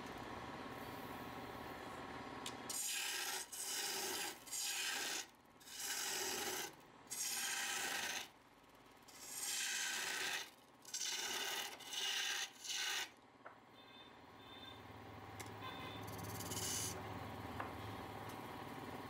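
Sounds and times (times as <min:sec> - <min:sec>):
tool rasping against wood: 0:02.7 - 0:08.3, 0:09.1 - 0:13.1.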